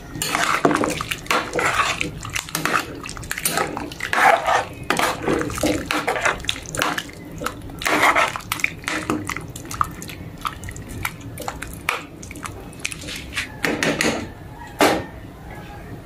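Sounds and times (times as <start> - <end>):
liquid sloshing in a pot: 0.0 - 14.2
metal ladle scraping a pot: 0.1 - 9.3.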